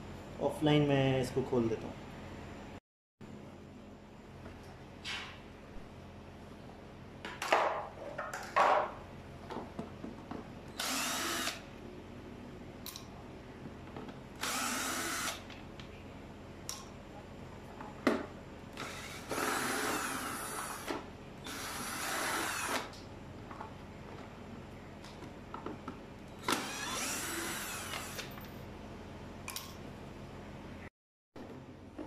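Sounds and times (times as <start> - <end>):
cordless drill running: 10.7 - 11.6, 14.4 - 15.4, 18.8 - 22.9, 26.4 - 28.3.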